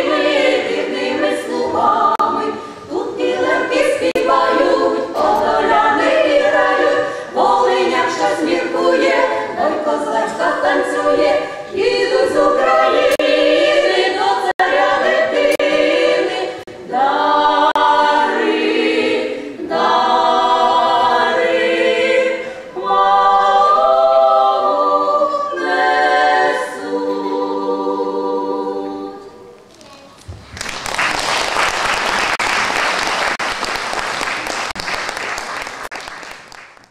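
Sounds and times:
women's choir singing unaccompanied: 0:00.0 - 0:29.6
audience applause: 0:30.3 - 0:36.9.

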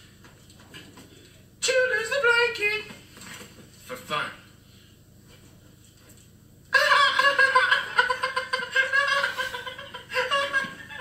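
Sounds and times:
man cackling laughter: 0:06.7 - 0:11.0.

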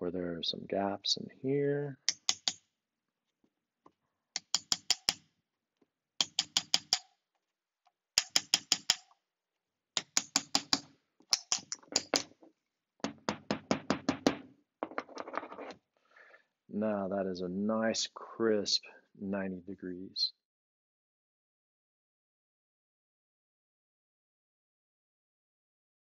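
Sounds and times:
small hammer tapping screwdriver: 0:02.1 - 0:02.6, 0:04.4 - 0:05.2, 0:06.2 - 0:07.0, 0:08.2 - 0:09.2, 0:10.0 - 0:12.2.

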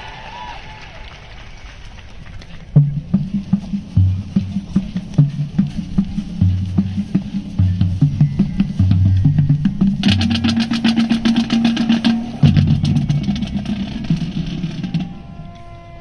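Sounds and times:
low drum notes: 0:02.7 - 0:16.0
snare drum roll: 0:02.8 - 0:15.4.

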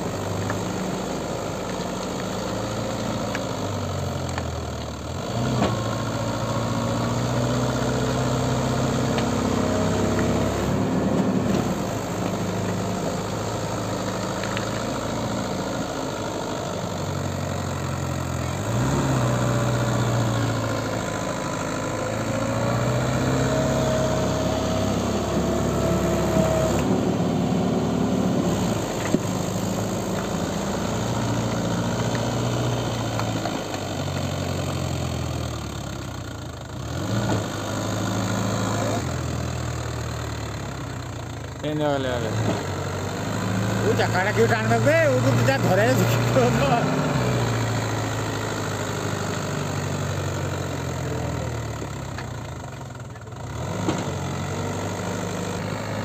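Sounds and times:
tractor diesel engine labouring: 0:00.0 - 0:56.0.

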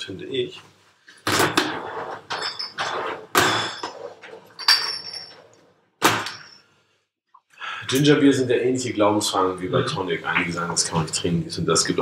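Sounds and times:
glass bottles clinking: 0:02.3 - 0:05.6.

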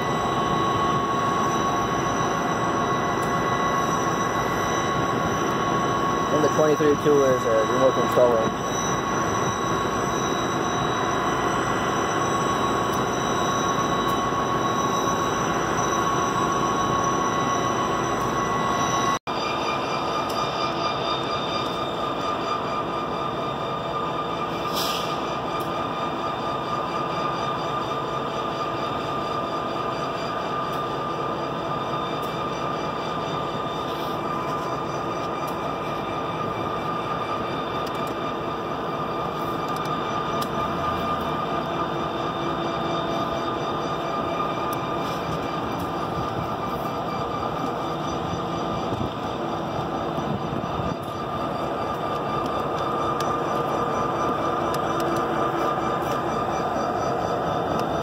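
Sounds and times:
diesel locomotives idling: 0:00.0 - 0:58.0.

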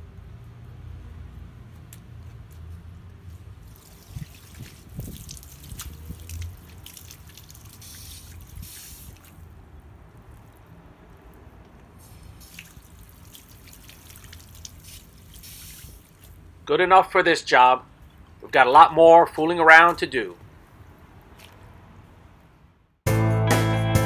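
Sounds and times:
water hissing and splashing: 0:03.6 - 0:09.5, 0:11.9 - 0:16.4.

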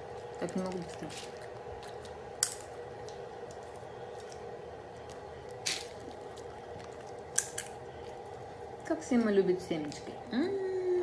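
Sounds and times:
dog chewing seeds: 0:00.0 - 0:08.5
steady hum: 0:00.0 - 0:11.0
seed shells cracking: 0:00.1 - 0:08.2.

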